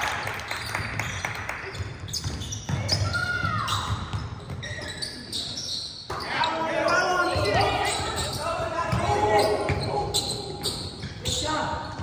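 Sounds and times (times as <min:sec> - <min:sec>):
basketball bouncing on gym floor: 0:00.8 - 0:05.0, 0:07.3 - 0:12.0.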